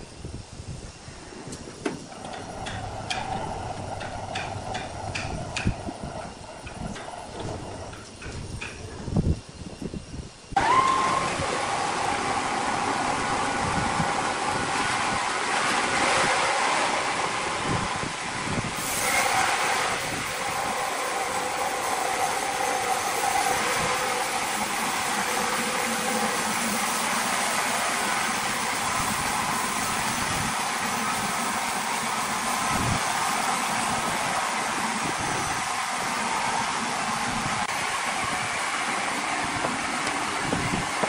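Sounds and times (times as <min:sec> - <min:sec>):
band saw cutting log: 0:18.8 - 0:31.5.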